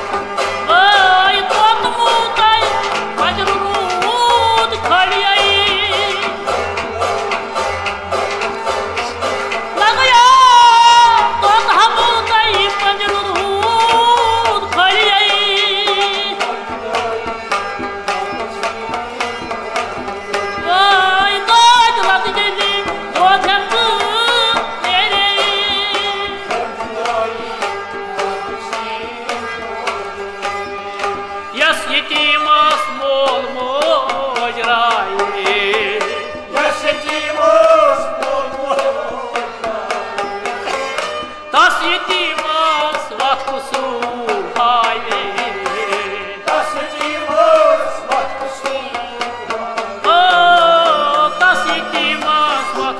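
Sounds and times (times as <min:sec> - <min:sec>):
bowed string instrument: 0:00.0 - 0:52.9
clay pot drum rhythm: 0:00.0 - 0:52.9
harmonium: 0:00.0 - 0:52.9
plucked strings: 0:00.0 - 0:52.9
man singing: 0:09.8 - 0:30.4, 0:31.5 - 0:40.3, 0:41.5 - 0:52.9.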